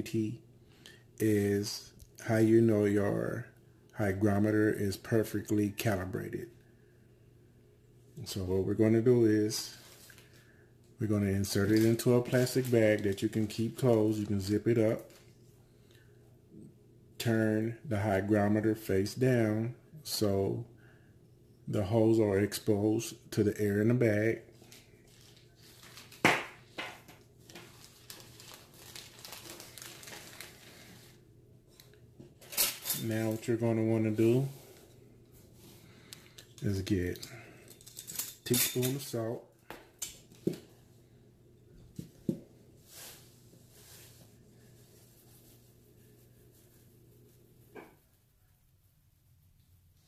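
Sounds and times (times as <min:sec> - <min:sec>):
plastic bag crinkling: 0:24.6 - 0:26.8, 0:27.4 - 0:31.2.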